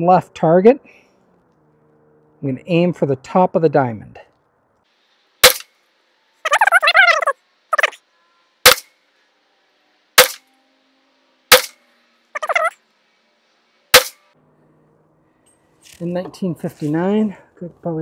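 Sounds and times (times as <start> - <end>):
suppressed gunshots: 5.4 - 5.7, 8.6 - 8.9, 10.2 - 10.4, 11.5 - 11.8, 13.9 - 14.2.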